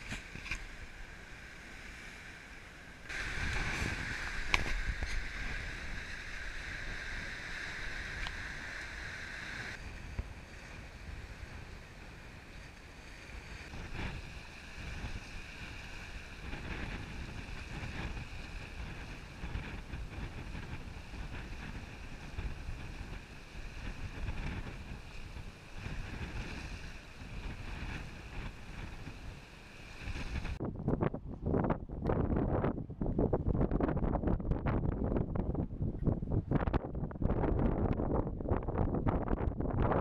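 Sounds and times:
water rushing along hull: 0.0 - 30.6
wind buffeting microphone: 3.1 - 40.0.

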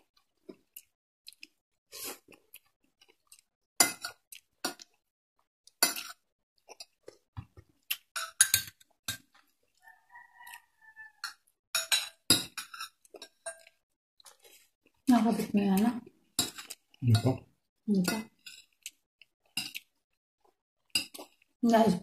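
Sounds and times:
cutlery clinking on glass bowl: 8.2 - 9.3, 11.2 - 13.7, 16.4 - 17.4.

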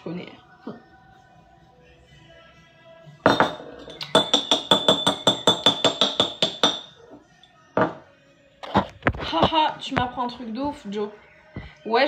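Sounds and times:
metal utensil clinking on dish: 3.3 - 7.0.

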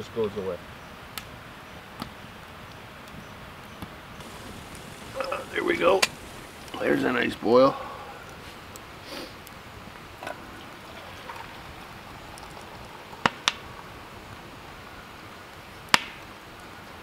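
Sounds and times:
water poured from kettle: 10.3 - 14.3
sharp clicks or pops: 15.9 - 16.3.

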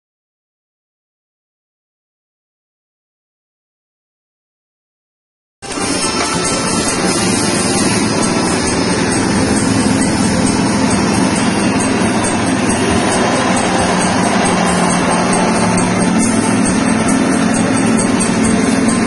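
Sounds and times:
small petrol engine running: 5.6 - 19.0.

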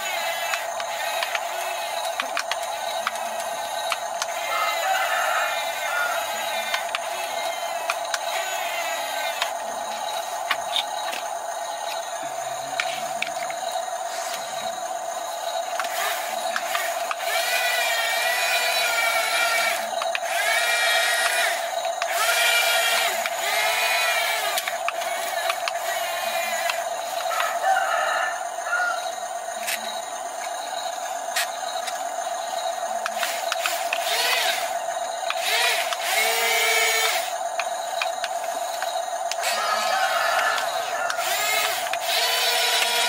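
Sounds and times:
steady hum: 0.0 - 27.7
toy electric motors whining: 0.0 - 43.0.

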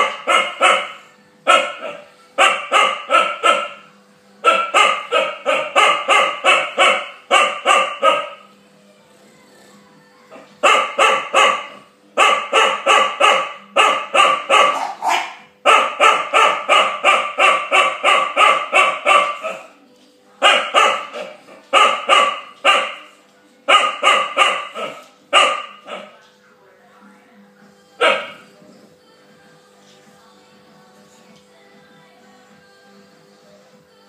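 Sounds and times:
puppy barking: 0.0 - 8.4, 10.4 - 19.7, 20.4 - 26.2, 28.0 - 28.4.

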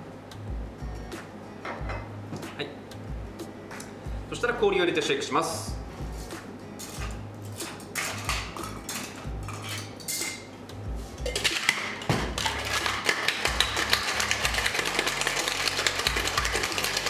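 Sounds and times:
ice cubes clinking into shaker: 11.3 - 17.0
ice rattling in shaken shaker: 11.3 - 17.0.

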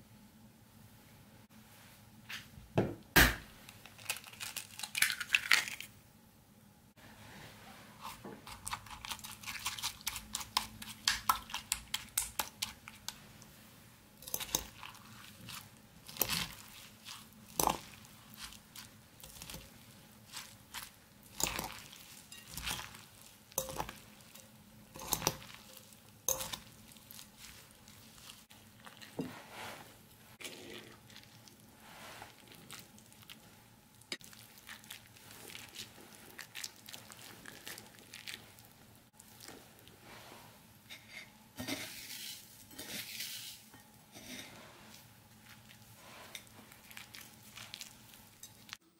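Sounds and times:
vegetables crunching and rustling: 3.7 - 5.9, 8.0 - 13.2, 14.2 - 33.5, 34.1 - 39.8, 44.2 - 48.9.

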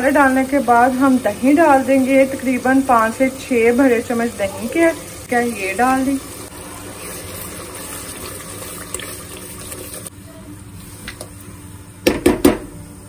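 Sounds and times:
oil sizzling and bubbling in a pot: 0.0 - 13.0
spatula stirring: 6.9 - 10.1
loud knocks: 12.1 - 12.7.

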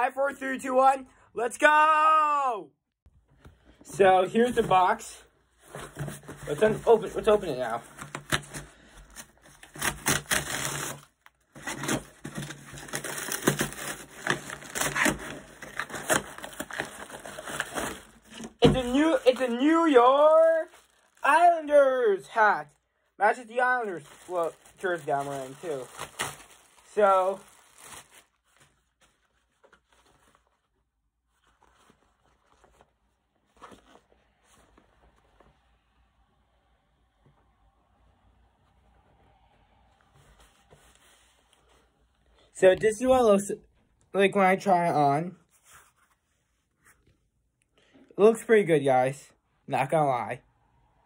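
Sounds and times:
cap and clothing rustling: 3.2 - 35.5, 40.2 - 43.5, 45.4 - 47.3
cardboard box tearing and rustling: 9.2 - 19.5, 24.1 - 28.3.

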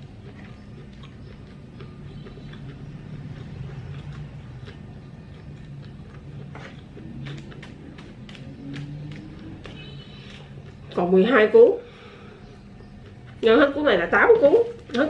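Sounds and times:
chewing with wet mouth clicks: 0.0 - 11.0, 12.4 - 13.4.

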